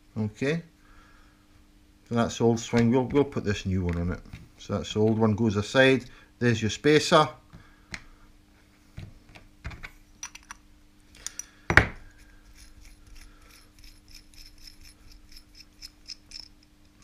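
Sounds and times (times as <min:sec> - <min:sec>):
small metal parts clicking: 0:11.2 - 0:17.0.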